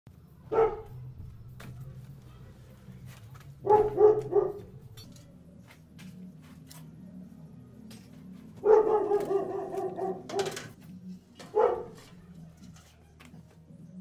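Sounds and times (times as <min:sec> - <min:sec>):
dog barking: 0:00.5 - 0:01.0, 0:03.6 - 0:04.8, 0:08.6 - 0:10.6, 0:11.4 - 0:12.3.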